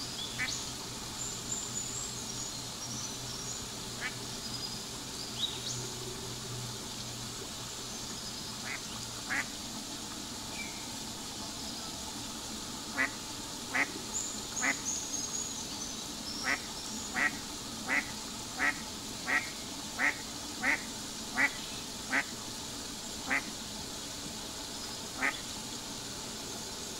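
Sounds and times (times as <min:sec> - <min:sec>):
small birds chirping: 0:13.7 - 0:18.0
ducks calling: 0:16.4 - 0:20.8.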